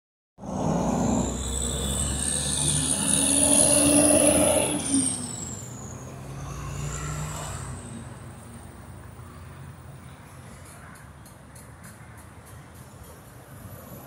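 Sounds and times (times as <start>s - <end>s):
dump truck passing: 0.4s - 9.9s
cars running along road: 0.4s - 14.0s.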